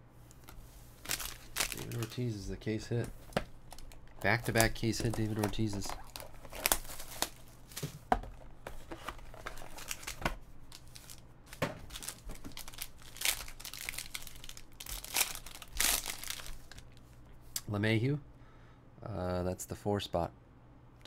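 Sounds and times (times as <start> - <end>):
foil pack crinkling and tearing: 0.4 - 2.4, 3.7 - 8.0, 8.9 - 17.0.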